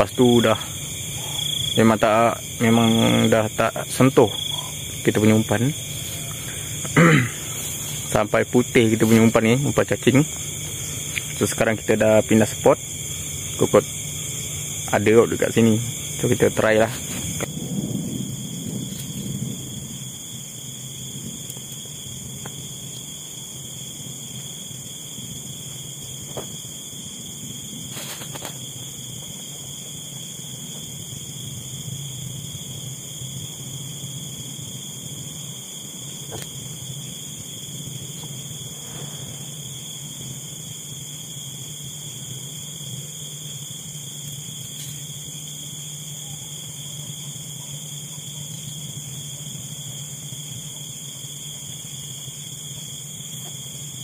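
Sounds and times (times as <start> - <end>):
low steady hum: 0.0 - 17.9
insects chirping: 0.0 - 54.0.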